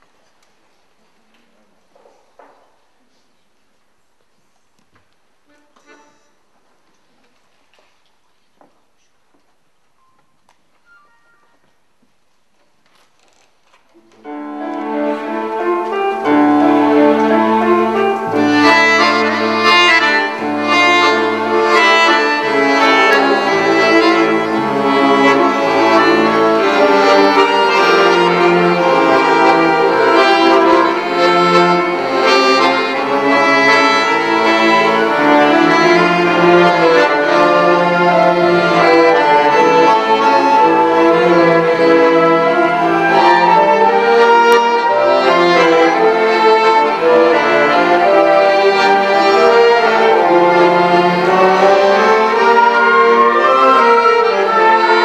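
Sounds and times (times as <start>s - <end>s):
bowed strings: 14.2s - 55.0s
accordion melody: 14.3s - 55.0s.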